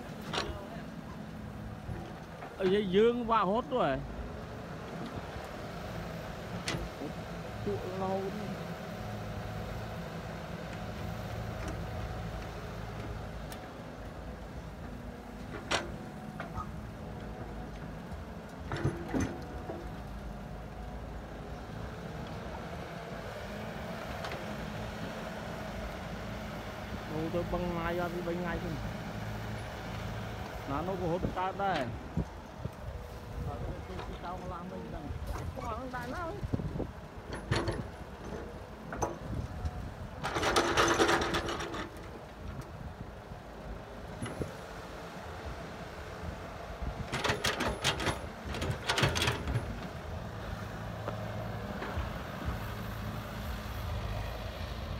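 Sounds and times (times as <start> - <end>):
excavator diesel engine running: 0.0 - 54.9
soil clods rattling into truck bed: 40.2 - 42.2, 47.1 - 49.8.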